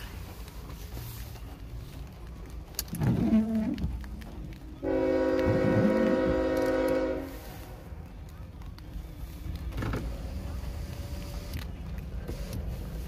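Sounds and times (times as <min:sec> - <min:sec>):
locomotive air horn blast: 0:04.8 - 0:07.8.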